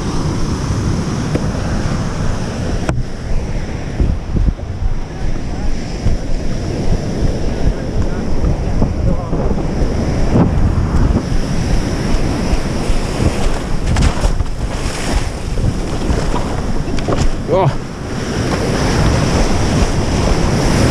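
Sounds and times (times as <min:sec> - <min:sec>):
waves breaking on beach: 0:00.0 - 0:20.9
wind buffeting microphone: 0:00.0 - 0:20.9
splashing in water: 0:12.2 - 0:17.5.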